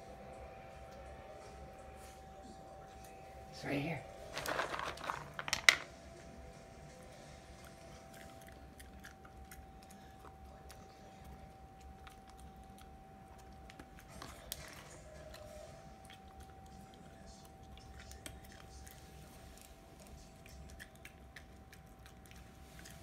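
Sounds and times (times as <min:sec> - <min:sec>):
faint high hum: 0:00.0 - 0:23.0
dog crunching dry kibble: 0:04.2 - 0:06.0, 0:07.5 - 0:23.0.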